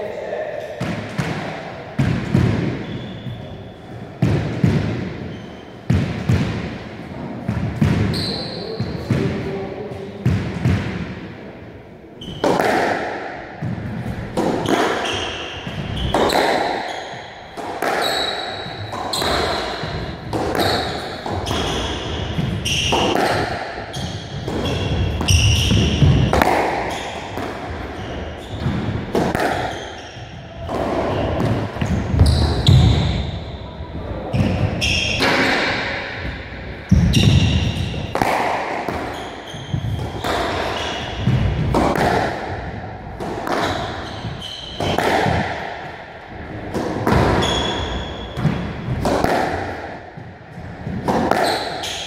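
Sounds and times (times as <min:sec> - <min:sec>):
shoe squeaks on wooden floor: 0:02.8 - 0:03.7, 0:08.1 - 0:09.1, 0:18.0 - 0:19.9, 0:23.9 - 0:26.1, 0:31.1 - 0:33.5, 0:39.1 - 0:41.2, 0:43.6 - 0:45.0, 0:47.3 - 0:48.4
squash ball smacking off walls: 0:12.3 - 0:16.9, 0:17.5 - 0:27.9, 0:34.4 - 0:46.0, 0:46.6 - 0:52.0.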